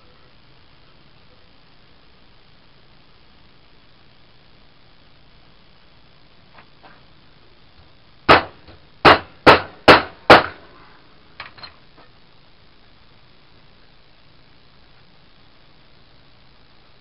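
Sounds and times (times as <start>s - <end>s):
hammer striking hole punch: 8.3s - 10.6s.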